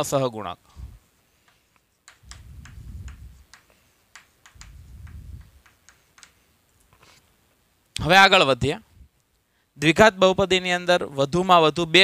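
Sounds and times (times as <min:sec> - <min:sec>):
chalk tapping and scratching: 0:01.4 - 0:07.2.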